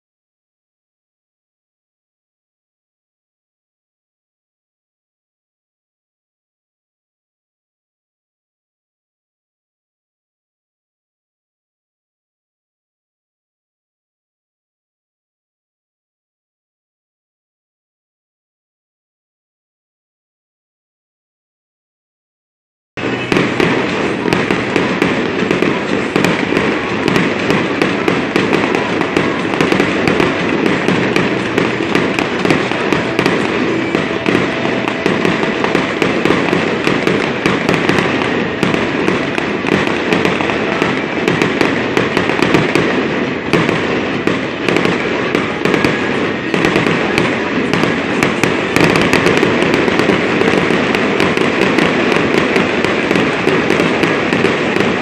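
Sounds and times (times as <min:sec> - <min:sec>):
fireworks crackling and popping: 0:23.0 - 0:55.0.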